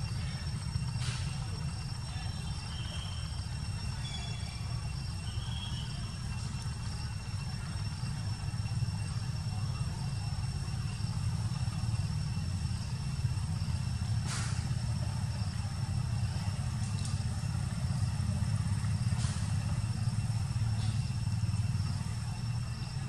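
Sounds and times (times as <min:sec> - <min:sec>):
low outdoor rumble: 0:00.0 - 0:23.0
brief hiss: 0:14.2 - 0:14.8.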